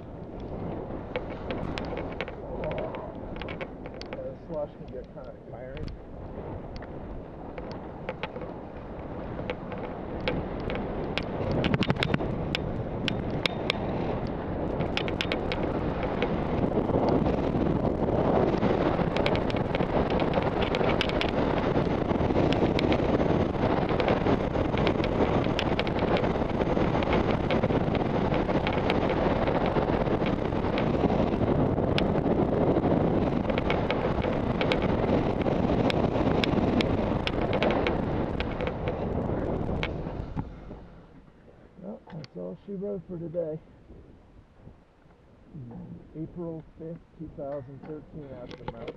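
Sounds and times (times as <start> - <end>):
wind buffeting microphone: 0.0 - 48.9
sharp clicks: 1.1 - 6.0, 46.4 - 48.9.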